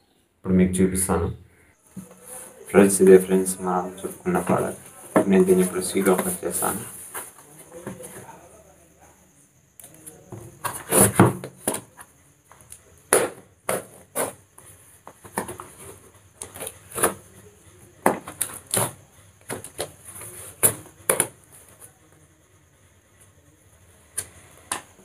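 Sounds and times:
cardboard rustling: 13.1s - 21.9s.

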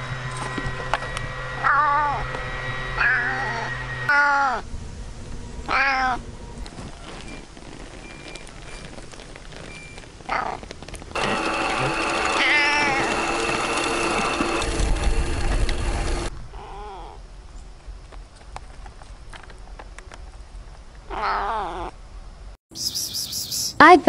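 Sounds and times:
cat meowing: 1.6s - 2.3s, 3.0s - 4.6s, 5.7s - 6.2s, 10.3s - 10.6s, 12.4s - 13.1s, 16.6s - 17.2s, 21.1s - 21.9s.

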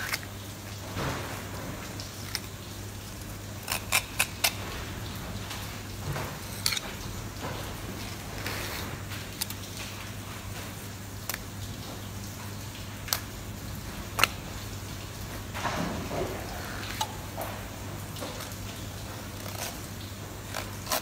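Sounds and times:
knife scraping fish bones: 3.6s - 4.6s, 20.5s - 21.0s.

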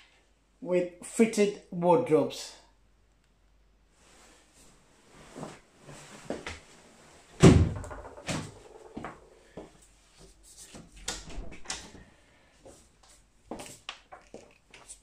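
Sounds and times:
wooden wardrobe door knocking shut: 7.4s - 8.7s.

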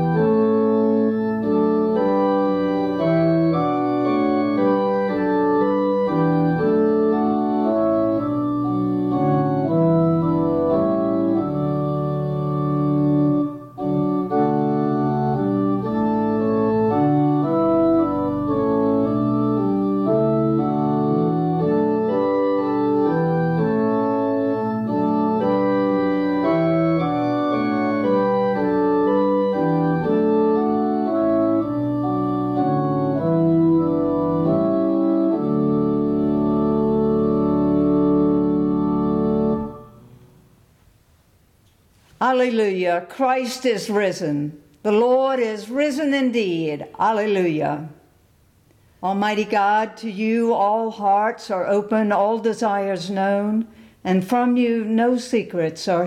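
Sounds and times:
organ playing sustained chords: 0.0s - 41.4s.

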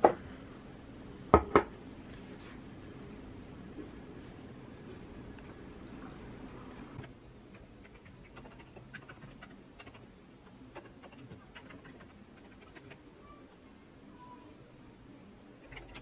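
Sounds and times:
keyboard typing: 7.8s - 10.1s.

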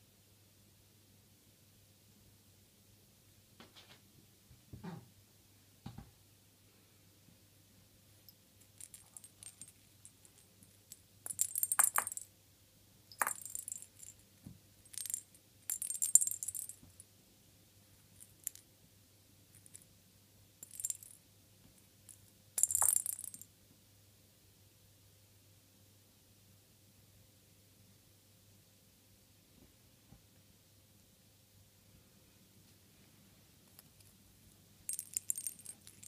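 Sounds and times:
plastic ball jingling on carpet: 8.6s - 12.3s, 13.1s - 14.2s, 14.9s - 17.0s, 20.6s - 21.2s, 22.6s - 23.4s, 34.9s - 36.0s.

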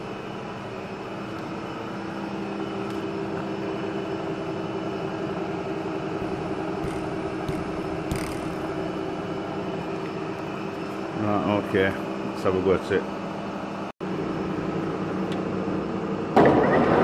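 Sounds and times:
workshop machinery hum: 0.0s - 17.0s
sharp metallic knock: 6.8s - 8.6s.

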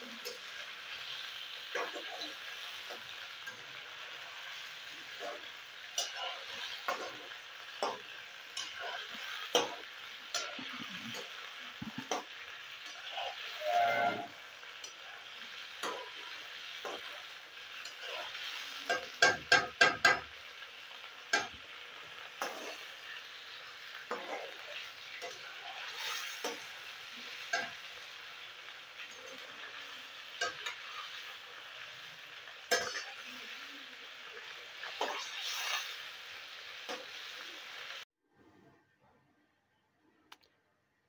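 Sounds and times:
fish sizzling in a pan: 0.0s - 38.1s
spatula knocking on pan: 18.9s - 20.3s.

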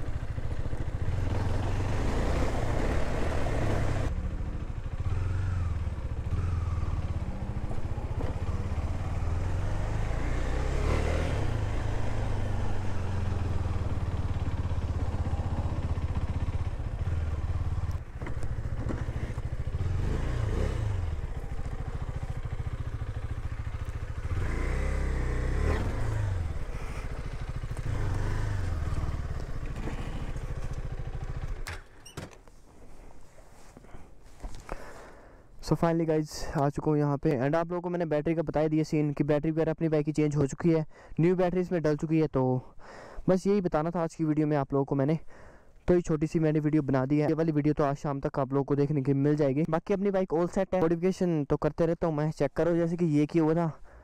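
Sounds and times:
motorcycle engine revving: 0.0s - 32.0s.

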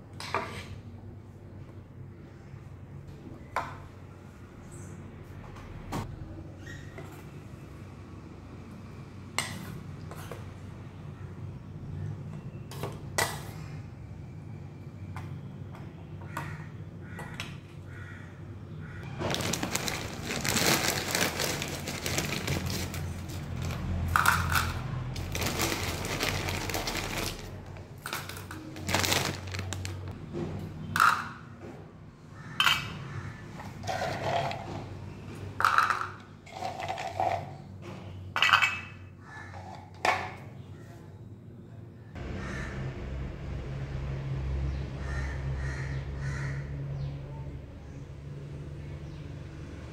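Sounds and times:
handling noise: 19.1s - 30.2s
metal spoon clinking on steel bowls: 32.6s - 33.0s, 38.4s - 40.0s.

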